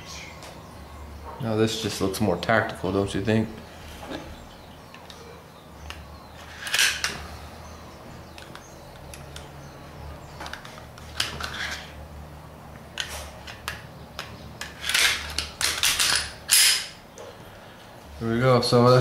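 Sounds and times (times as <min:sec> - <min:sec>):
pistol slide clicks and scrapes: 0:10.5 - 0:12.0, 0:14.6 - 0:16.9.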